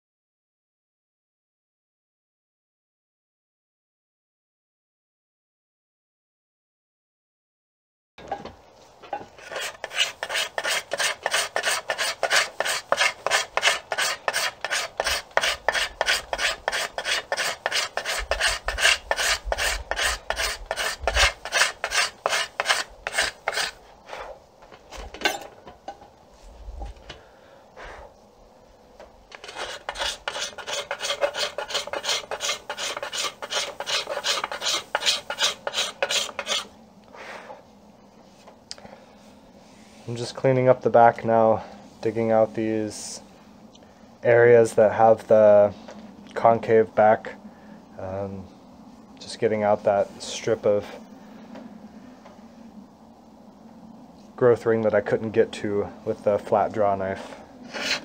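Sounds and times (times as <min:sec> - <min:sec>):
hand scraper scraping wood: 0:09.2 - 0:24.4, 0:29.3 - 0:36.7, 0:57.6 - 0:58.0.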